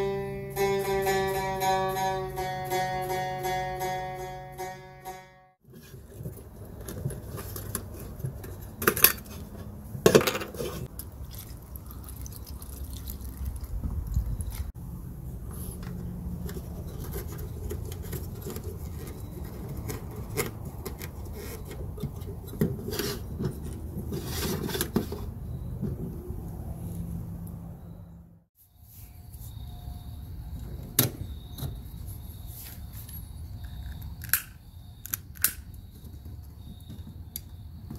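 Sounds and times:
metal lantern parts clinking: 0:07.6 - 0:10.9.

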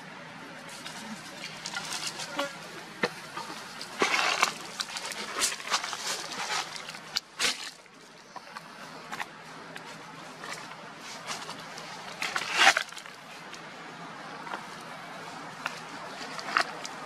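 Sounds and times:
dry leaves rustling and crackling: 0:00.6 - 0:13.6.

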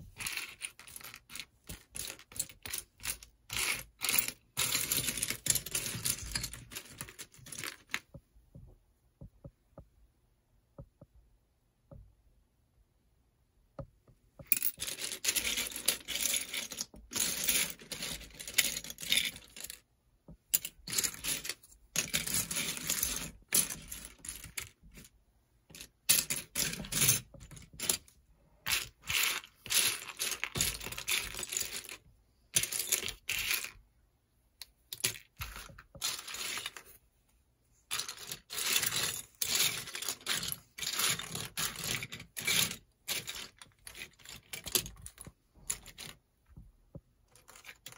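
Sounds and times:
plastic pieces clicking and clattering: 0:00.1 - 0:08.2, 0:14.4 - 0:25.1, 0:25.7 - 0:33.8, 0:34.6 - 0:37.0, 0:37.9 - 0:46.2, 0:47.3 - 0:47.9.

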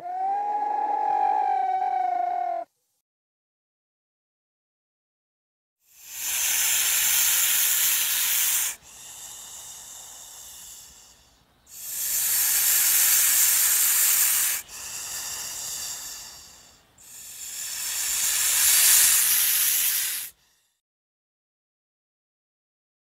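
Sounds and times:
loud hissing pulses: 0:05.9 - 0:20.6.

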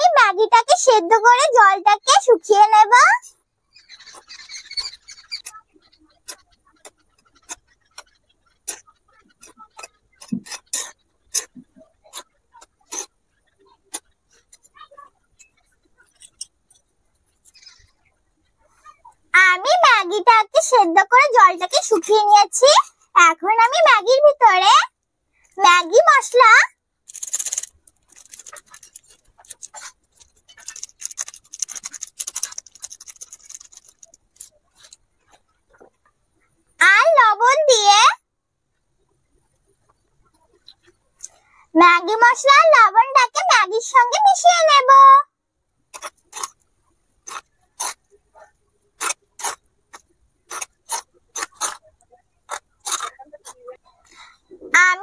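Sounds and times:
foil sachet crinkling: 0:27.1 - 0:35.0
metal spoon scraping clay pot: 0:27.1 - 0:35.0.

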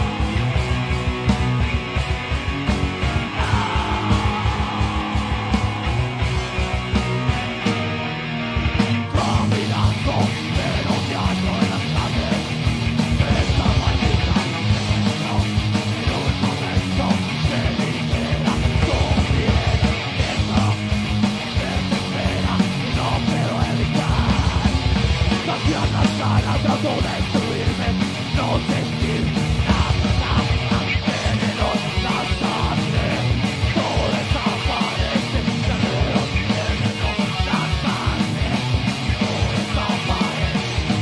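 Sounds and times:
rapid drumming on drum kit: 0:00.0 - 0:07.5, 0:08.8 - 0:41.0
distorted electric guitars: 0:00.0 - 0:41.0
person yelling vocals: 0:03.4 - 0:05.0.

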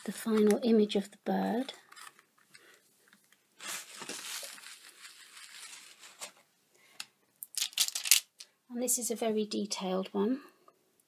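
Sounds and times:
plastic sheet crinkling: 0:03.6 - 0:06.4, 0:07.5 - 0:08.4.

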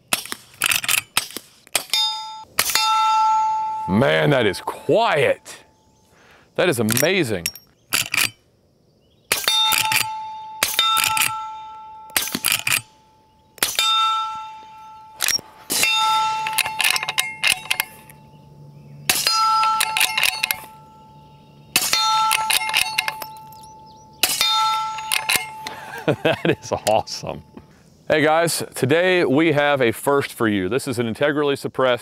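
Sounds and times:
bullet clanging on steel target: 0:00.2 - 0:04.7, 0:06.8 - 0:08.4, 0:09.3 - 0:13.0, 0:13.6 - 0:18.3, 0:19.1 - 0:25.8.

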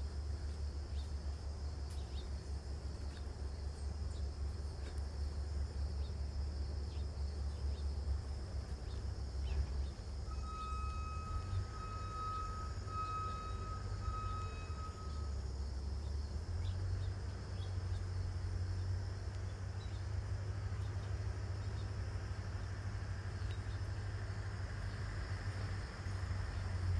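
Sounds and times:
clear steady tone: 0:10.2 - 0:15.4
faint scattered clicks: 0:19.2 - 0:20.0.

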